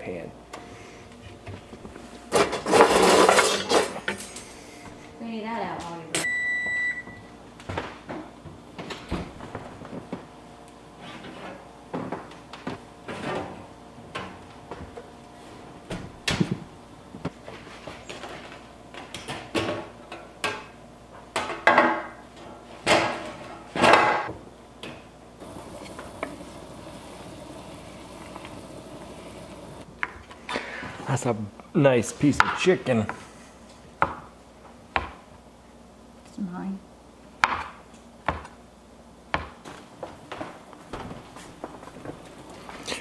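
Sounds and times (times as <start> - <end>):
low hiss of stirring: 25.4 - 29.9.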